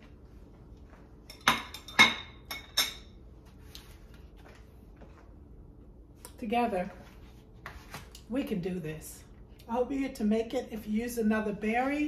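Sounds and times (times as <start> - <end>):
dishes clinking: 1.2 - 3.2.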